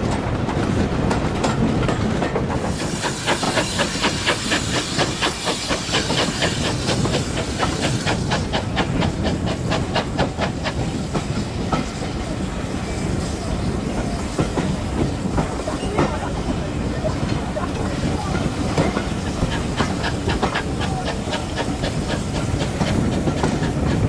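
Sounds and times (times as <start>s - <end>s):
steam locomotive exhaust beat: 0.0s - 24.0s
steam hissing: 2.5s - 24.0s.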